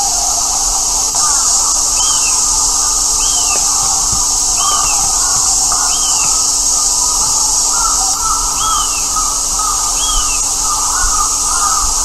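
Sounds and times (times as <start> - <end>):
steady high hiss: 0.0 - 12.0
crows cawing: 7.7 - 12.0.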